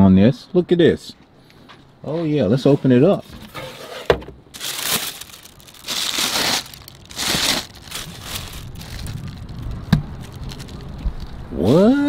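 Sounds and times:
tissue paper crinkling: 0:04.5 - 0:11.4.

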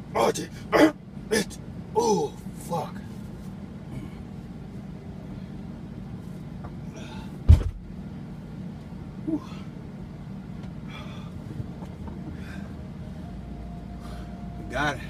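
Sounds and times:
truck engine idling: 0:08.1 - 0:15.0
faint breaths: 0:10.8 - 0:11.6, 0:12.3 - 0:12.9, 0:13.9 - 0:14.6.

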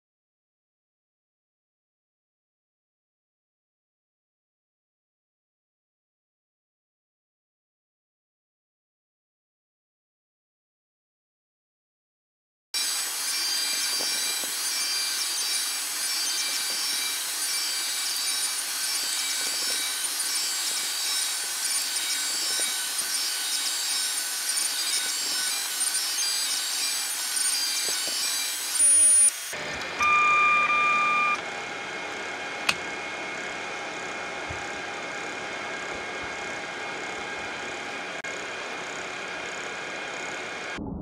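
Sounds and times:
stepper motors whining: 0:12.8 - 0:31.4
brief high tone: 0:30.0 - 0:31.4, 0:40.8 - 0:41.0
steady beep: 0:30.0 - 0:31.4.

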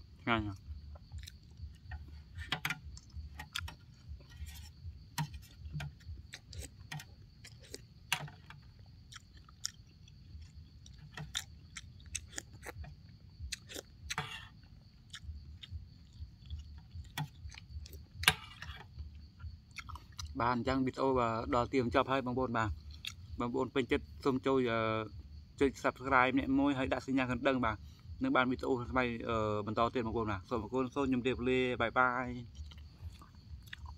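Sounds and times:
person chewing wetly: 0:00.5 - 0:20.4, 0:22.8 - 0:23.3, 0:32.5 - 0:33.9.

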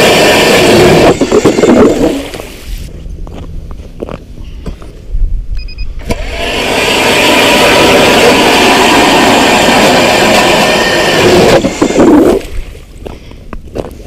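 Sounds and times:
ice auger motor whirring: 0:00.0 - 0:02.6, 0:06.0 - 0:12.6
blade grinding ice: 0:00.0 - 0:02.7, 0:06.1 - 0:12.7.

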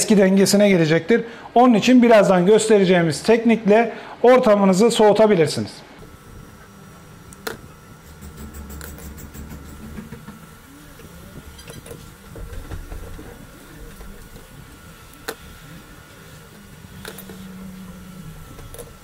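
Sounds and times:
low steady hum: 0:05.8 - 0:19.0
sharp small clicks: 0:07.3 - 0:10.6.

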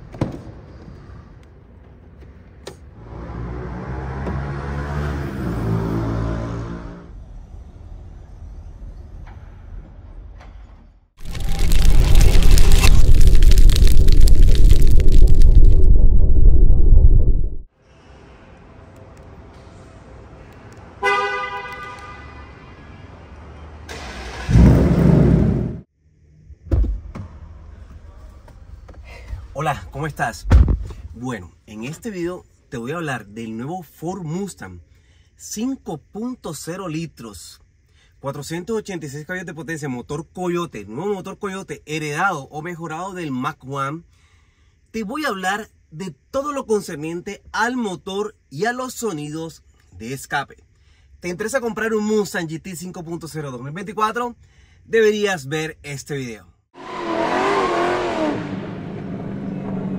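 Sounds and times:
car engine rumbling: 0:11.2 - 0:17.7
car horn: 0:21.0 - 0:23.2
sharp thump: 0:30.4 - 0:31.0.

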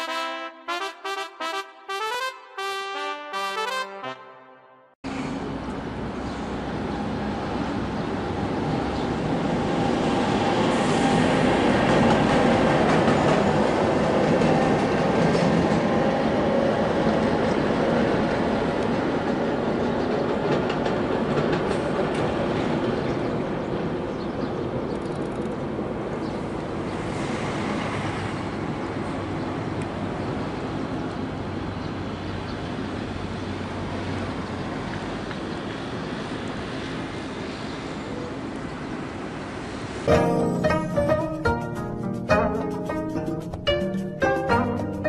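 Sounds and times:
freight train wheels rumbling on rail: 0:05.1 - 0:40.0.

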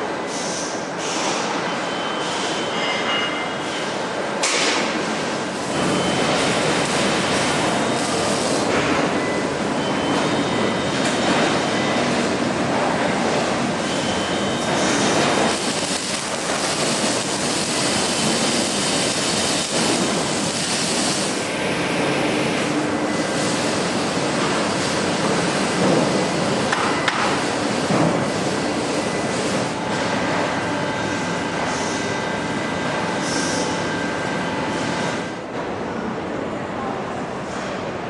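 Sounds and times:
machinery and ventilation noise: 0:00.0 - 0:38.0
welding hissing bursts: 0:14.8 - 0:21.4.

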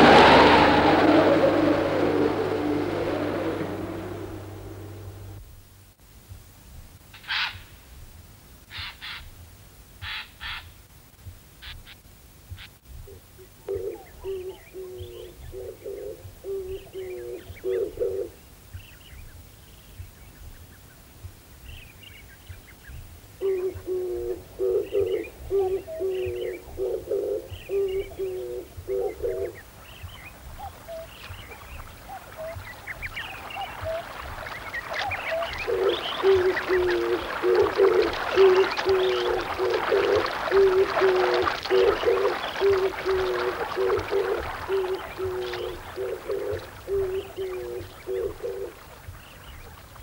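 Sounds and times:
bird cooing call: 0:00.0 - 0:05.3, 0:13.1 - 0:18.4, 0:23.4 - 0:48.8
running water: 0:00.0 - 0:05.4, 0:19.2 - 0:50.0.

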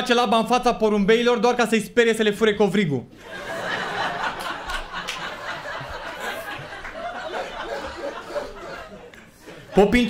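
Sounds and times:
audience laughing: 0:03.2 - 0:10.0.

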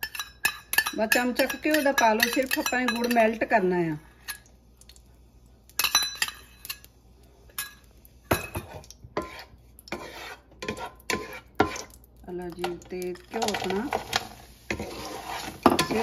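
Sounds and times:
spoon clinking against steel bowl: 0:00.0 - 0:03.4, 0:05.8 - 0:06.9
spoon scraping frying pan: 0:00.0 - 0:04.5, 0:05.7 - 0:16.0.

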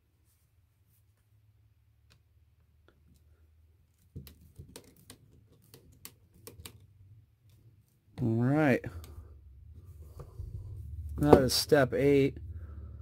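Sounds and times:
faint low hum: 0:06.8 - 0:13.0.

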